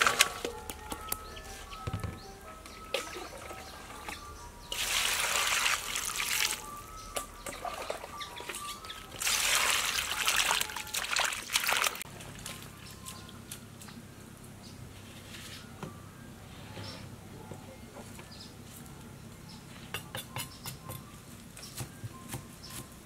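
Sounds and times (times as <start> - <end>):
water pouring into metal bowl: 4.7 - 6.7, 9.2 - 12.0.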